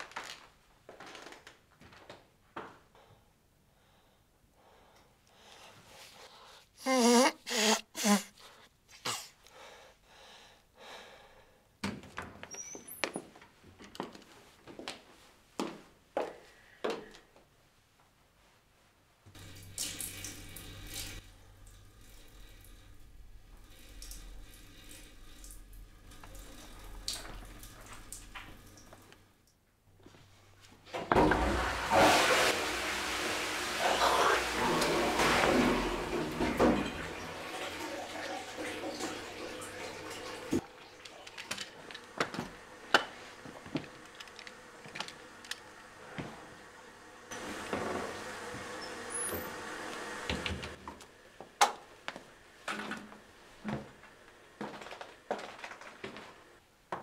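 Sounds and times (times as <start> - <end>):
man sneezing: 6.8 - 9.4
toilet flushing: 19.3 - 29.4, 30.9 - 51.0
faint running water: 19.3 - 50.9.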